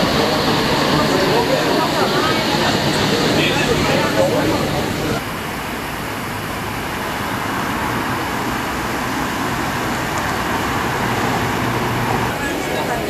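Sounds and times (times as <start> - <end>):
cars passing on street: 0.0 - 13.0.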